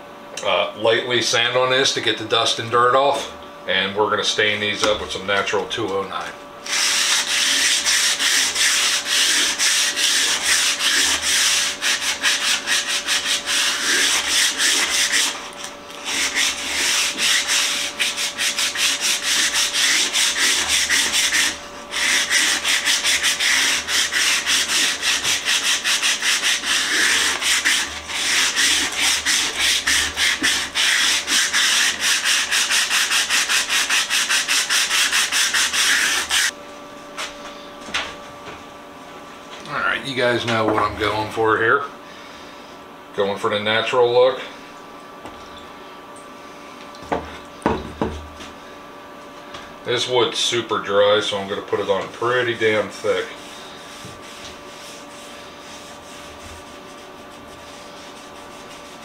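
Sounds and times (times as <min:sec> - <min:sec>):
sanding wood by hand: 0:06.7 - 0:36.6, 0:52.4 - 0:59.0.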